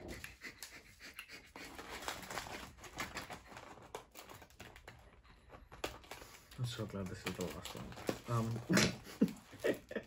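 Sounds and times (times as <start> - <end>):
snack packets crinkling in box: 1.6 - 9.7.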